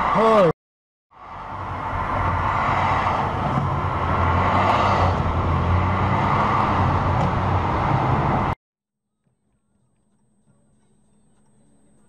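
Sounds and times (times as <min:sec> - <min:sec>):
car engine hum and road noise: 0:01.2 - 0:08.6.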